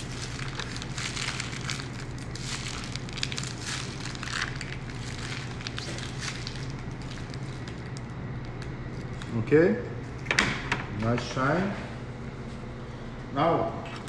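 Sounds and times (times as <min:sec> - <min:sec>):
plastic piping bag crinkling: 0:00.0 - 0:09.4
steady low hum: 0:00.0 - 0:14.0.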